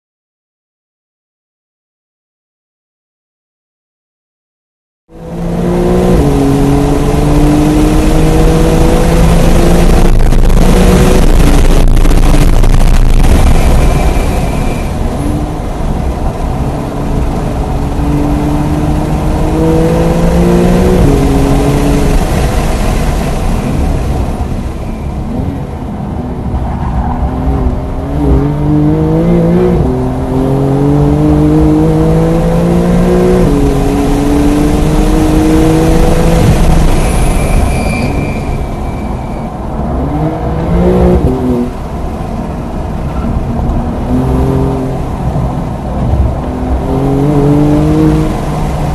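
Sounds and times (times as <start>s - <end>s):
car engine accelerating through gears: 5.1s - 14.4s, 15.1s - 23.5s, 25.3s - 37.0s, 39.8s - 41.9s, 43.0s - 48.9s
road and wind noise: 5.1s - 48.9s.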